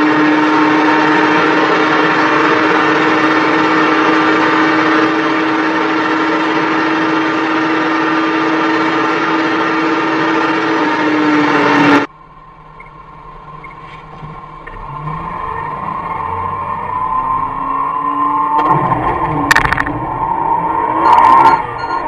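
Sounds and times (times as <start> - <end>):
motorcycle engine at high revs: 0.0 - 12.1.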